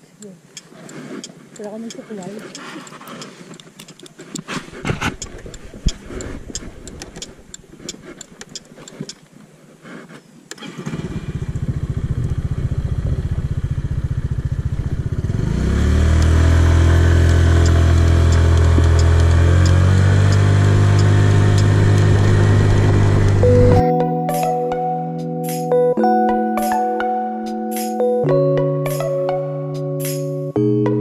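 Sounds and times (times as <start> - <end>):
scooter engine running: 10.6 - 23.8.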